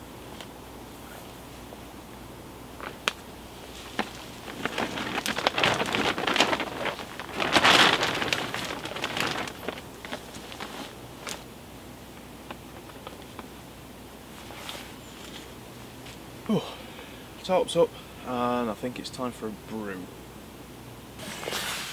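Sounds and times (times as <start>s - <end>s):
plastic tarp rustling and crinkling: 2.8s - 11.6s, 14.3s - 16.2s.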